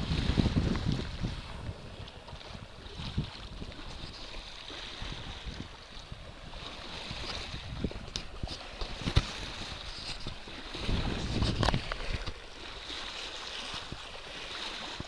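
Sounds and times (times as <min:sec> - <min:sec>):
waves slapping and splashing: 0:00.0 - 0:15.0
wind on microphone: 0:00.0 - 0:15.0.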